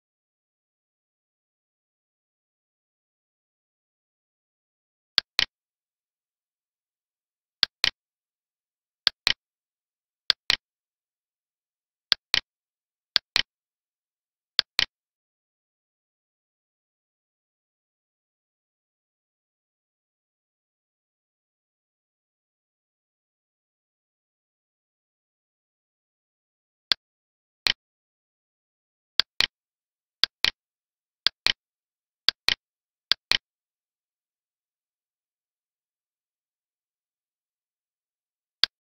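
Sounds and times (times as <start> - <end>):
computer mouse button clicks: 5.2 - 5.5, 9.1 - 9.4, 14.6 - 14.9
computer mouse clicks: 5.2 - 5.5, 9.1 - 9.4, 10.3 - 10.6, 12.1 - 12.5, 14.6 - 14.9, 31.2 - 31.6.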